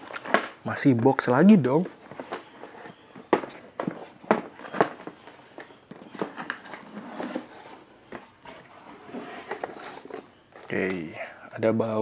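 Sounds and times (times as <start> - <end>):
cardboard scraping and rustling: 6.0 - 10.9.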